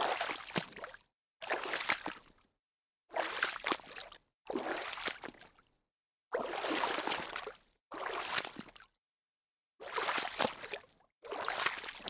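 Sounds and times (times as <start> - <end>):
water splashing: 6.4 - 8.6.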